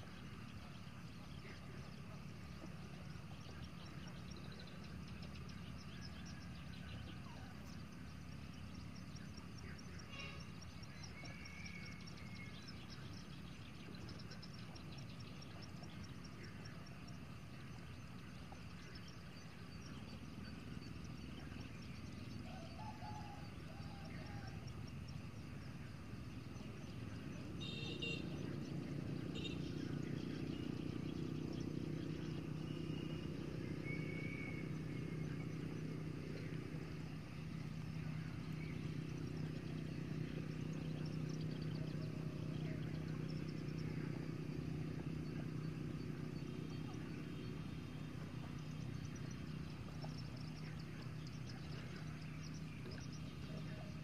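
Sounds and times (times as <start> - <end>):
faint bird chirps: 0.0 - 54.0
warbling bird call: 26.6 - 54.0.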